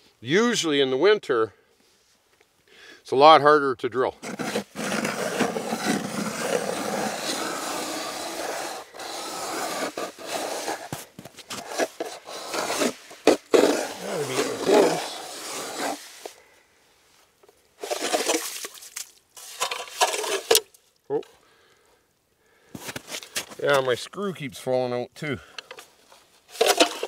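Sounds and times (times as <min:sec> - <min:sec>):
ice auger grinding into ice: 0:04.2 - 0:16.4, 0:17.8 - 0:18.8, 0:19.4 - 0:20.6, 0:26.5 - 0:27.0.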